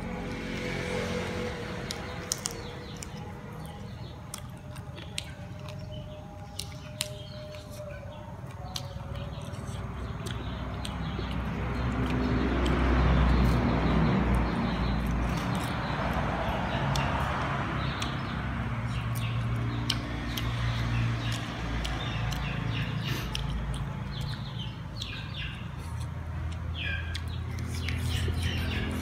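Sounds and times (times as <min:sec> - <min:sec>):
man chewing and lip-smacking: 0:01.8 - 0:12.8, 0:17.8 - 0:18.2, 0:18.9 - 0:29.0.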